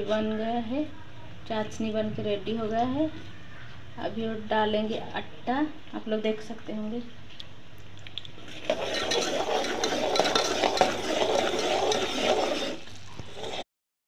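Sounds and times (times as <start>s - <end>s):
syrup bubbling in a pot: 7.4s - 13.6s
metal skimmer scraping pot: 8.4s - 13.6s.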